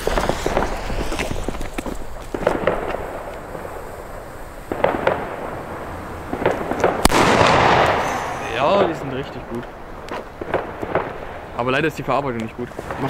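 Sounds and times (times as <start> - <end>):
firecracker bang with echo: 0.0 - 11.7.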